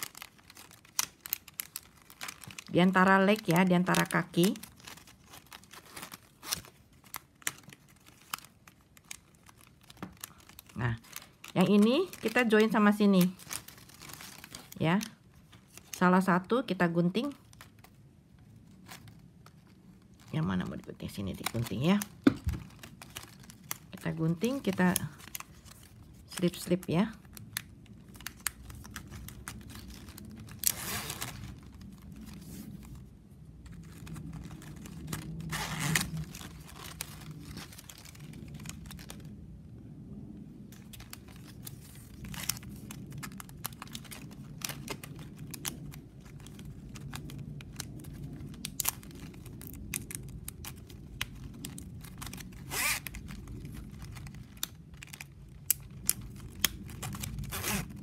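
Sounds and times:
plastic strapping crinkling and clicking: 0:00.0 - 0:39.3, 0:40.6 - 0:58.0.

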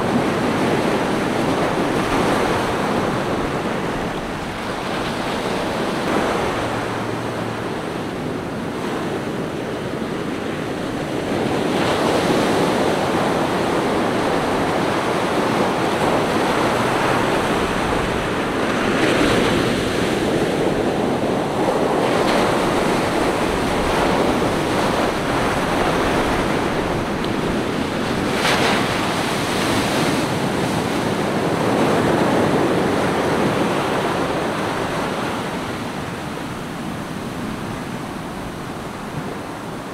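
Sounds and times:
small waves breaking on sand: 0:00.0 - 0:39.9.

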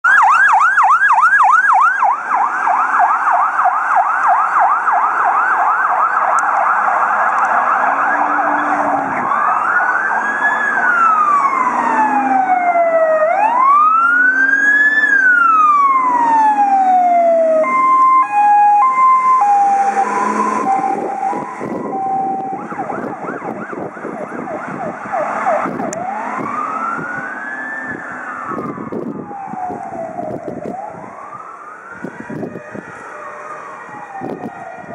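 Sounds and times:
fire engine sirens yelping and wailing: 0:00.0 - 0:34.9.

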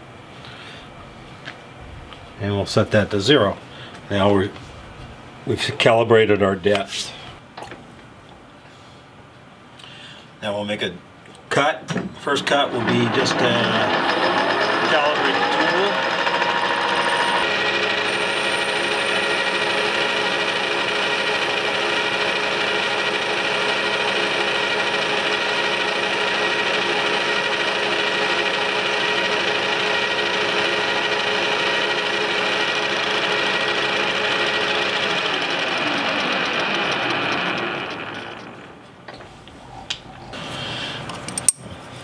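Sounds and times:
metal lathe whine: 0:12.4 - 0:38.8.

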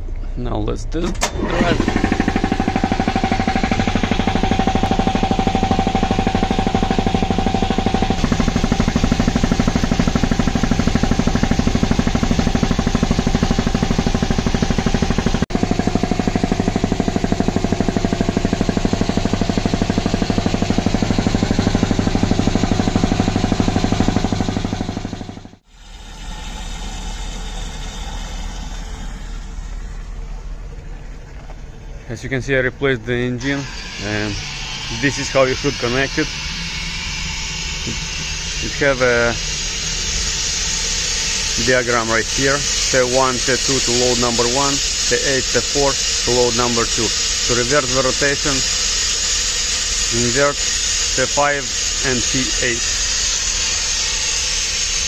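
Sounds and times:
piston air compressor running: 0:01.1 - 0:55.0.

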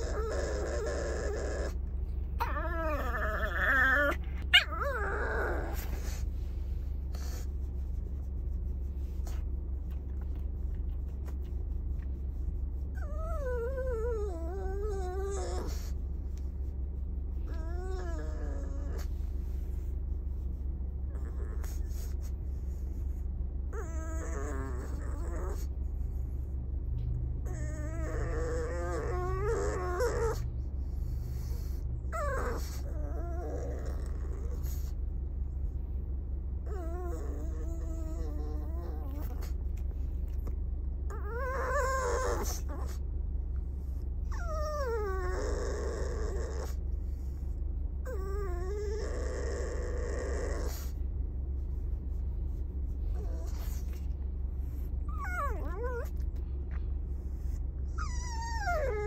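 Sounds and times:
dog whining and yowling: 0:00.0 - 0:06.3, 0:12.9 - 0:16.0, 0:17.4 - 0:19.2, 0:21.1 - 0:22.2, 0:23.7 - 0:25.7, 0:27.4 - 0:30.6, 0:31.2 - 0:35.0, 0:36.6 - 0:39.6, 0:41.1 - 0:43.0, 0:44.2 - 0:47.3, 0:48.0 - 0:51.0, 0:53.1 - 0:54.1, 0:54.7 - 0:56.4, 0:57.2 - 0:59.0
steady low hum: 0:00.0 - 0:59.0.

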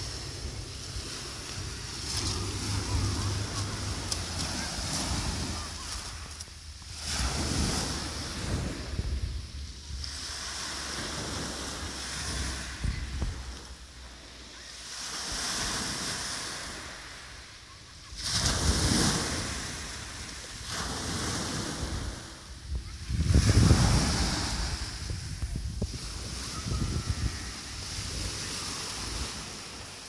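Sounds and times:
wind rumbling on microphone: 0:00.0 - 0:14.2, 0:18.2 - 0:30.0
waves breaking on pebble beach: 0:00.0 - 0:30.0.

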